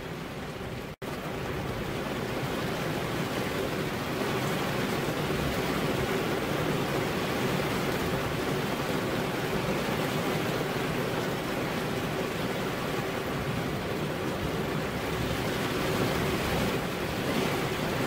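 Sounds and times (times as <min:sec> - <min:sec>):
steady rain falling: 0:00.0 - 0:18.0.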